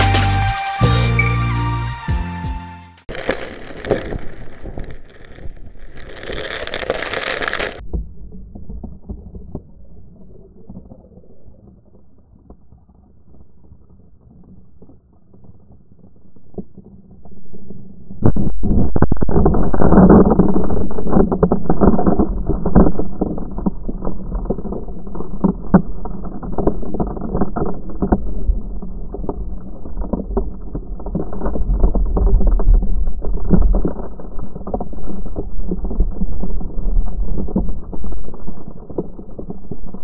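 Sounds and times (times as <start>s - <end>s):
sand and pebbles crackling: 3.1s - 7.9s, 12.9s - 40.0s
small waves rumbling: 3.1s - 18.2s
muffled underwater churning: 3.1s - 40.0s.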